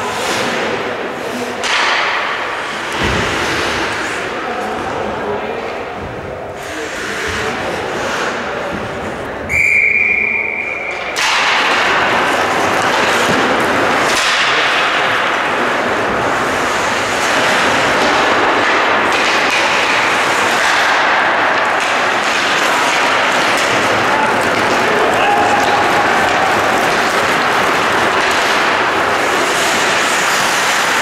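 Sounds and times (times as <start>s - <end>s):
referee's whistle: 9.5s - 11.1s
loud steady rushing noise: 11.2s - 31.0s.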